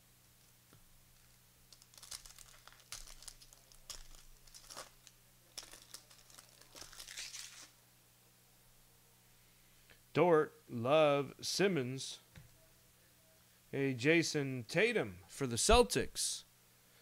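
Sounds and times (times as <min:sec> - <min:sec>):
plastic wrapper crinkling: 0:00.4 - 0:07.8.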